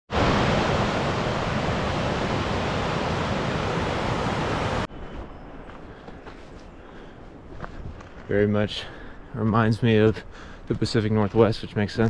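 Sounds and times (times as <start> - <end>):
running water rushing: 0.1 - 4.9.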